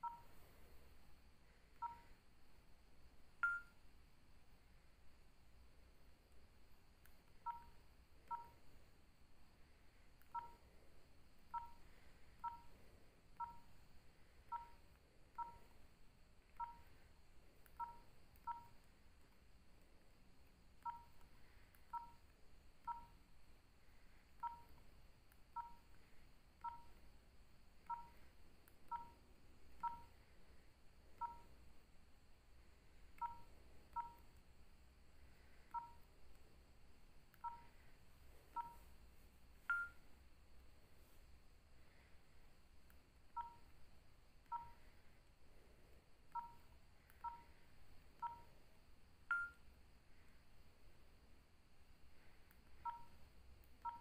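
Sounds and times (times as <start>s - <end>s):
phone key-press beeps: 0.0s - 0.4s, 1.8s - 2.2s, 3.4s - 3.8s, 7.3s - 8.7s, 10.2s - 10.6s, 11.4s - 11.8s, 12.4s - 13.7s, 14.5s - 15.7s, 16.5s - 17.0s, 17.6s - 18.8s, 20.8s - 23.2s, 24.4s - 26.0s, 26.6s - 27.0s, 27.8s - 28.3s, 28.9s - 29.2s, 29.8s - 30.2s, 31.2s - 31.6s, 33.1s - 34.4s, 35.7s - 36.1s, 37.3s - 37.9s, 38.5s - 38.9s, 39.6s - 40.0s, 43.3s - 43.7s, 44.4s - 44.9s, 46.3s - 48.5s, 49.2s - 49.7s, 52.8s - 54.0s.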